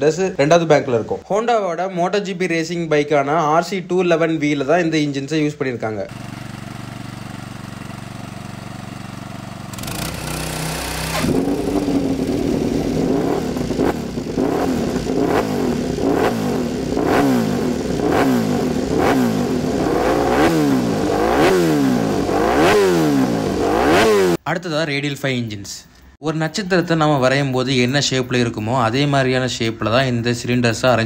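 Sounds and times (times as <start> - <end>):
racing engine revving in blips: 9.7 - 24.4
steady hum: 9.7 - 24.4.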